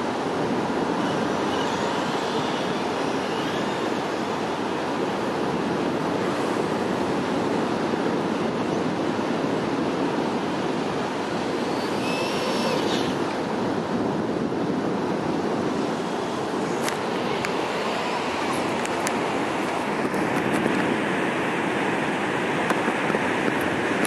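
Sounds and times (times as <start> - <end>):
surf breaking on beach: 0.0 - 24.0
wind on microphone: 0.0 - 24.0
electric motor whining: 11.6 - 13.4.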